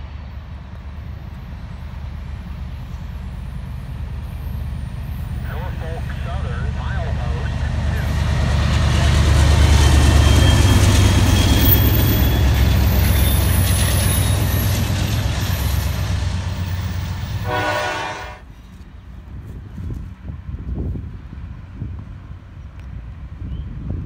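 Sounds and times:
train rumbling over rails: 0.0 - 24.0
train horn blast: 17.2 - 18.5.

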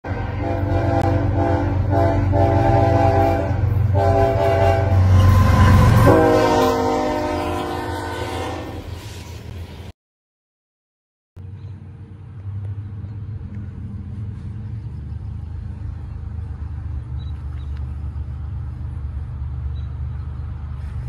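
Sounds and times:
locomotive horn blasts: 0.1 - 8.9
locomotive engine rumble: 0.1 - 9.9, 11.4 - 21.0.

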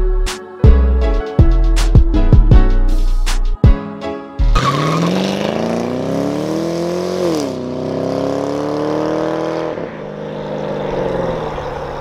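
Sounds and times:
car engine accelerating hard: 4.6 - 12.0.

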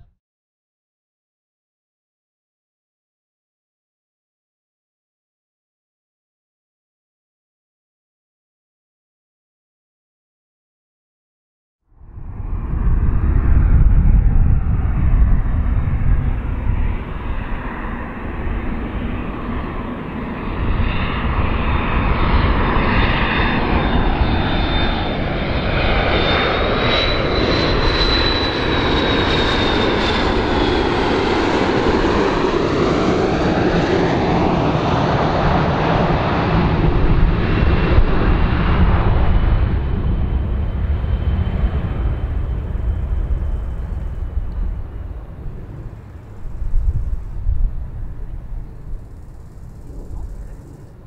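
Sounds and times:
deep rumble: 11.9 - 51.0
airliner jet engines roaring: 12.0 - 51.0.

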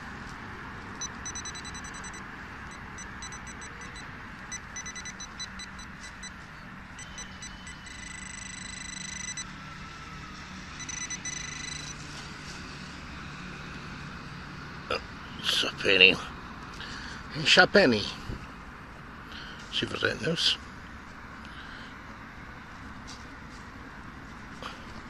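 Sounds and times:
metal detector beeping: 1.0 - 6.4, 7.0 - 9.5, 10.8 - 12.0.

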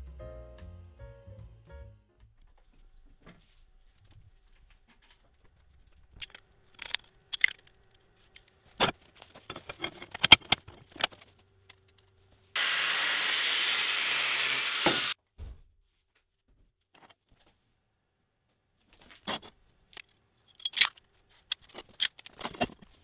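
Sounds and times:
angle grinder cutting steel: 12.6 - 15.2.

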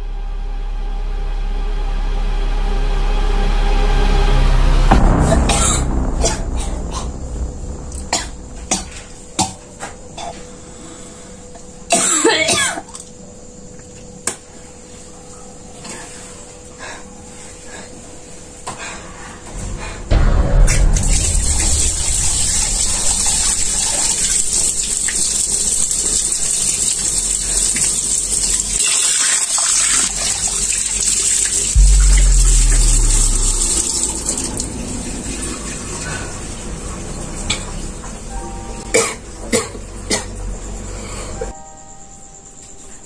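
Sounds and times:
deep low sound: 0.0 - 10.0, 19.6 - 24.2, 31.8 - 38.9.

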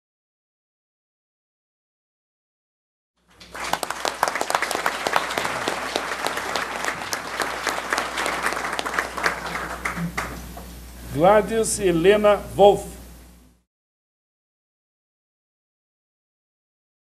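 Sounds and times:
crowd applauding: 3.3 - 10.4.

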